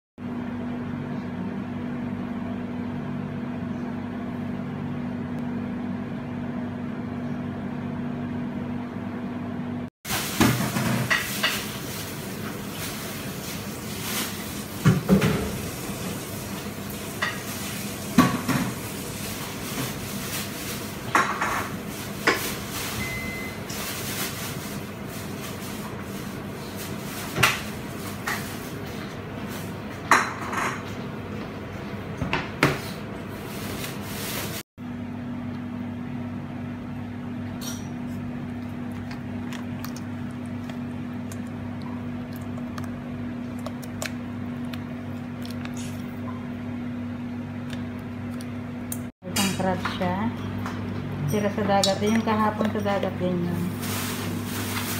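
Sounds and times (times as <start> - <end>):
steady low hum: 34.8 - 54.7.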